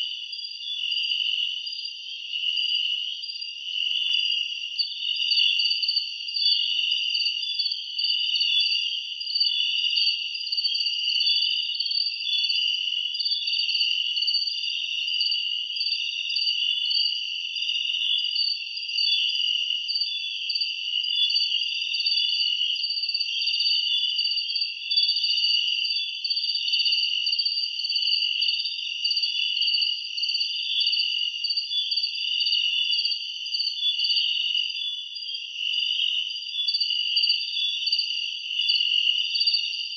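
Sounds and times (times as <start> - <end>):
night insects trilling: 0.0 - 39.9.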